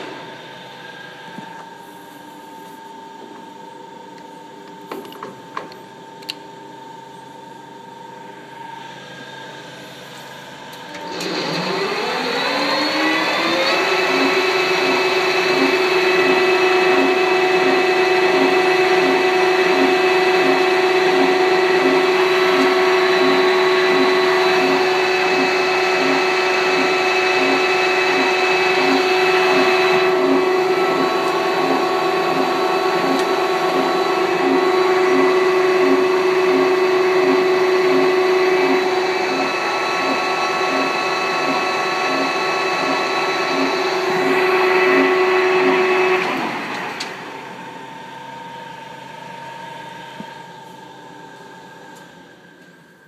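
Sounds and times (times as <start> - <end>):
lathe running: 11.0 - 48.4.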